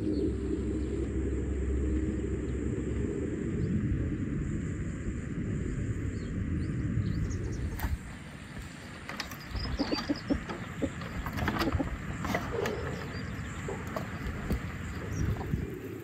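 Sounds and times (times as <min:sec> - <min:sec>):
low steady rumble: 0:00.0 - 0:16.0
hens clucking: 0:07.8 - 0:16.0.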